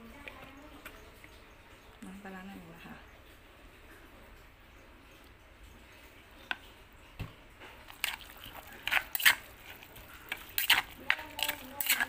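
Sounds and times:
spoon scraping stone mortar: 0:07.8 - 0:12.0.

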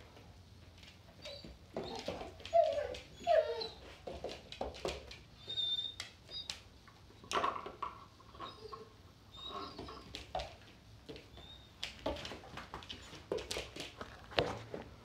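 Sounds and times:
puppy whining and whimpering: 0:01.2 - 0:04.1, 0:05.4 - 0:06.6, 0:08.3 - 0:10.4, 0:11.3 - 0:11.9.

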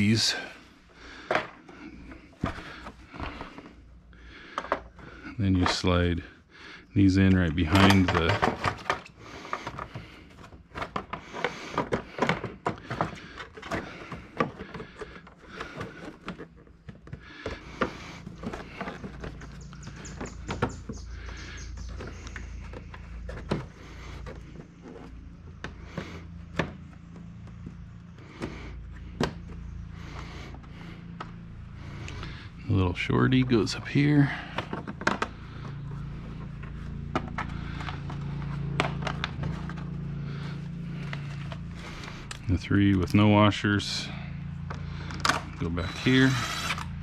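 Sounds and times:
steady low hum: 0:00.0 - 0:47.0
plastic panels clicking and knocking: 0:01.2 - 0:03.6, 0:04.5 - 0:06.0, 0:07.4 - 0:29.6, 0:34.4 - 0:39.9.

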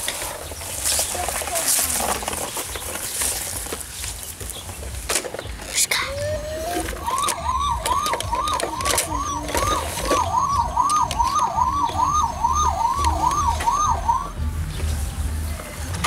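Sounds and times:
toy siren wailing: 0:06.1 - 0:14.4
toy being handled knocks: 0:06.6 - 0:12.1.

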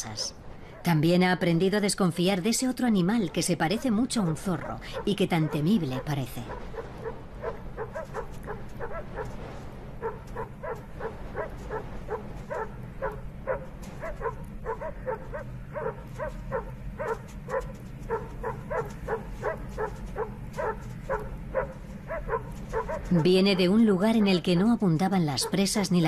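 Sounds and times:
low steady hum: 0:00.0 - 0:26.0
dog barking: 0:04.6 - 0:09.4, 0:10.0 - 0:24.7.

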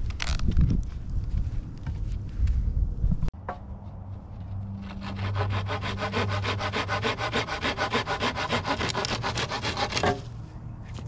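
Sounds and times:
handsaw cutting wood: 0:04.8 - 0:10.2.

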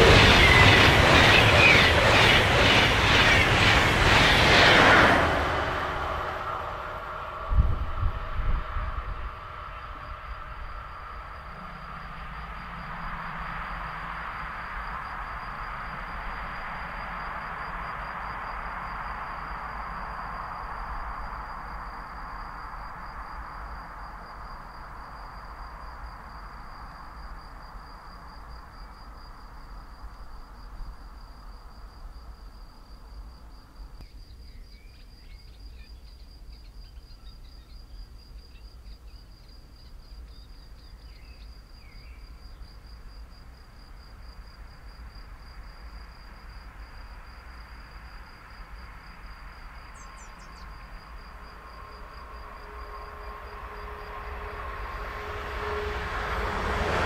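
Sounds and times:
low rumble: 0:00.0 - 0:15.4
approaching train rushing: 0:00.0 - 0:33.6, 0:39.7 - 0:57.0.

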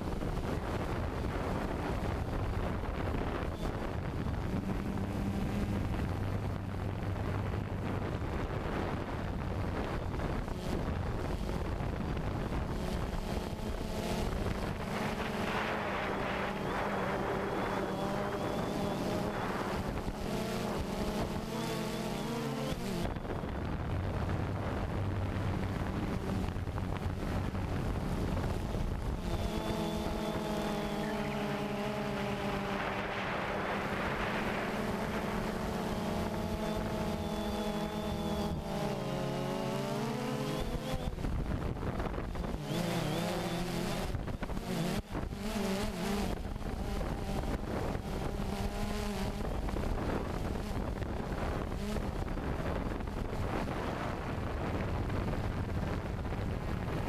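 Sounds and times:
drone propellers buzzing: 0:00.0 - 0:57.0
wind noise on microphone: 0:00.0 - 0:57.0.

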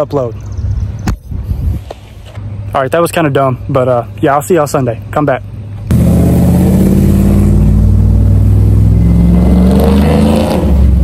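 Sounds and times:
engine running through exhaust: 0:05.9 - 0:11.0.

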